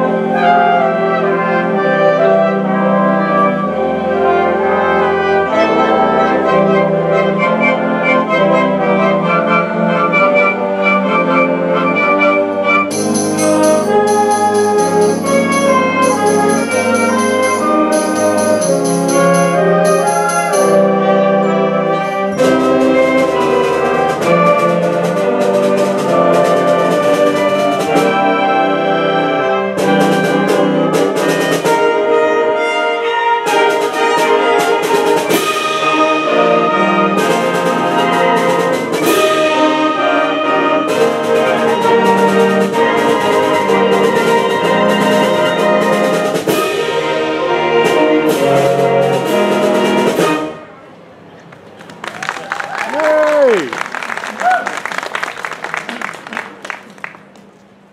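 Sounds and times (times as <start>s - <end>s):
percussion strokes: 12.9s - 21.2s
concert band playing fanfare: 12.9s - 21.3s, 52.0s - 56.9s.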